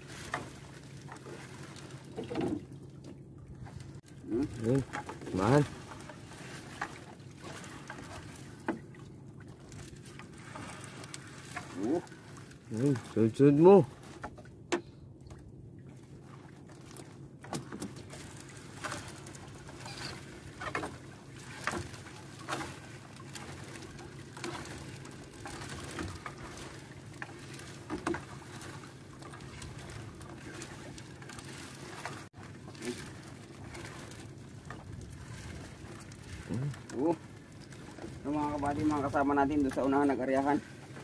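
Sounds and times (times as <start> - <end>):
water splashes: 0.0 - 41.0
light knocks on boat: 2.1 - 3.2, 14.1 - 15.4, 17.4 - 18.0.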